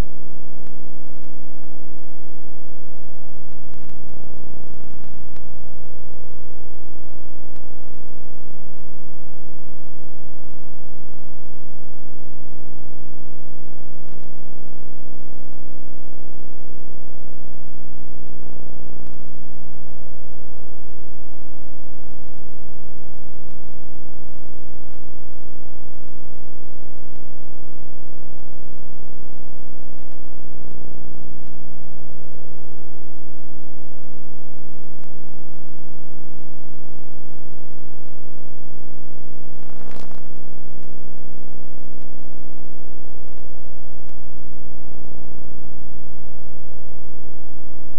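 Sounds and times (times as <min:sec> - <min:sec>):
steady electrical hum: 0:00.0 - 0:47.9
short electrical crackle: 0:39.6 - 0:40.4.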